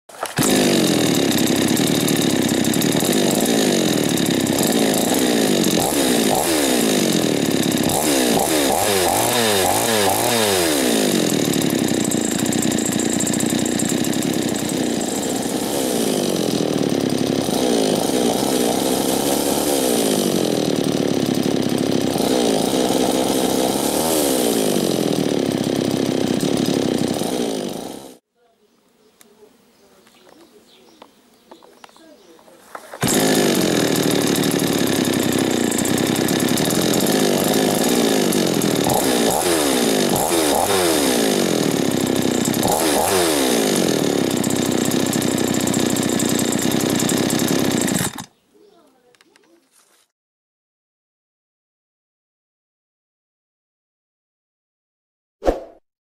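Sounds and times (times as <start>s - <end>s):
chainsaw engine revving: 0.2s - 28.2s, 32.9s - 48.3s.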